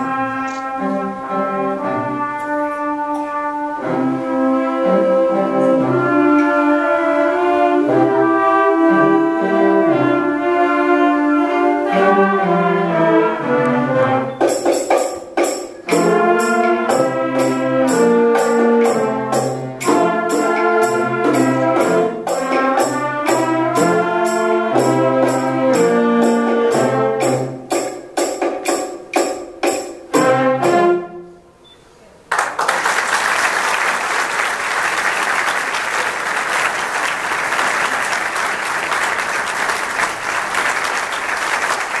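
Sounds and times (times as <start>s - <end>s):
brass and percussion band playing: 0.0s - 31.6s
audience applauding: 32.3s - 42.0s.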